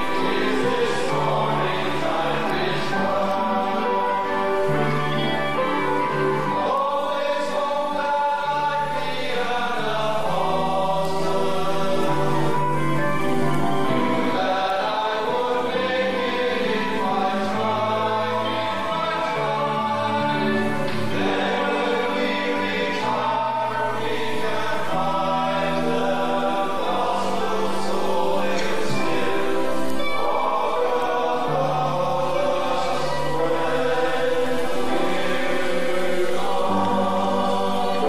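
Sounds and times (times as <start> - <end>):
choir singing long held notes: 0.0 - 38.0.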